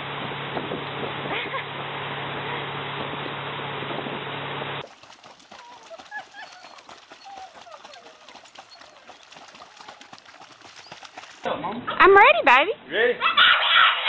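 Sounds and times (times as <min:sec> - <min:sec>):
boat engine humming: 0:04.8 - 0:11.5
boat wake rushing: 0:04.8 - 0:11.5
dogs splashing in a pool: 0:04.8 - 0:11.6.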